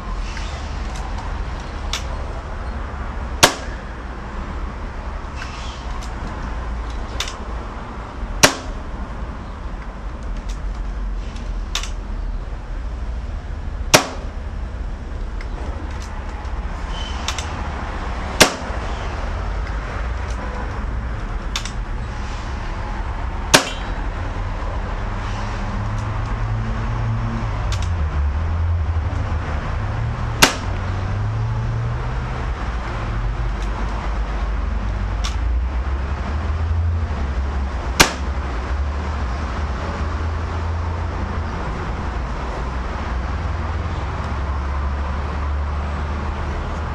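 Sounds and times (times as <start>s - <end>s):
air rifle shots: 3.4s - 3.9s, 8.4s - 9.0s, 13.9s - 14.4s, 18.3s - 19.1s, 23.5s - 24.0s, 30.4s - 30.8s, 38.0s - 38.3s.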